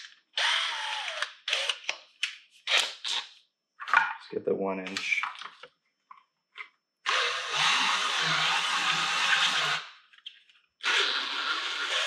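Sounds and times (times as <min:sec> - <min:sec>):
cordless drill through plastic: 0:00.3 - 0:02.0, 0:07.0 - 0:10.0, 0:10.8 - 0:12.0.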